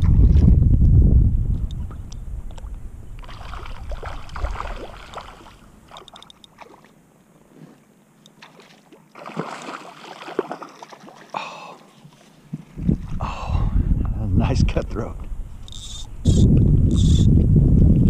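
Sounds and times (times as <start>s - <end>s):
wind rumble on microphone: 0.0s - 5.3s, 12.5s - 18.0s
fish thrashing splashing water: 3.2s - 6.9s, 8.4s - 11.4s.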